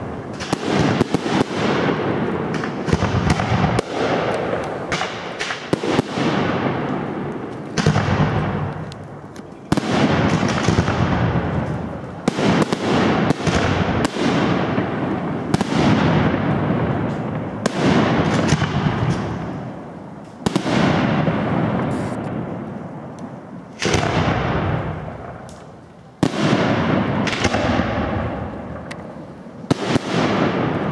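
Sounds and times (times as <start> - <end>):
firework shells bursting: 20.3 - 22.3.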